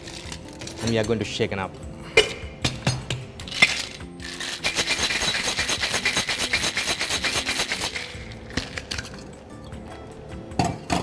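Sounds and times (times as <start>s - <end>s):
ice rattling in cocktail shaker: 3.5s - 9.2s.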